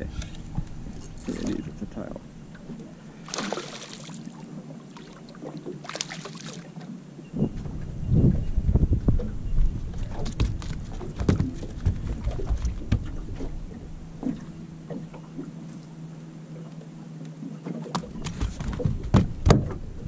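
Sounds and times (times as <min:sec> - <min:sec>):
steady low hum: 0:00.0 - 0:20.0
knocks and taps in a boat: 0:10.0 - 0:15.6, 0:16.6 - 0:19.9.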